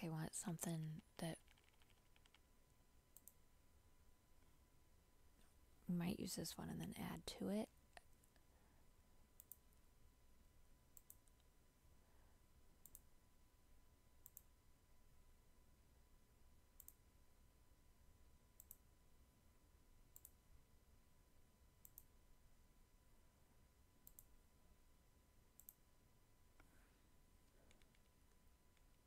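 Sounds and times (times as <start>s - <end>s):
computer mouse clicks: 1.0s - 2.5s, 3.1s - 3.4s, 9.4s - 9.7s, 10.9s - 11.5s, 12.8s - 13.1s, 14.2s - 14.5s, 16.8s - 17.0s, 18.6s - 18.9s, 20.1s - 20.4s, 21.8s - 22.1s, 24.0s - 24.3s, 25.6s - 25.8s, 27.5s - 29.0s.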